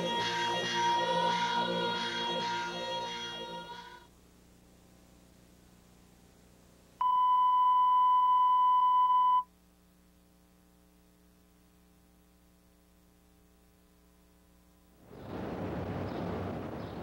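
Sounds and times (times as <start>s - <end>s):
electronic test tone beep: 7.0s - 9.5s.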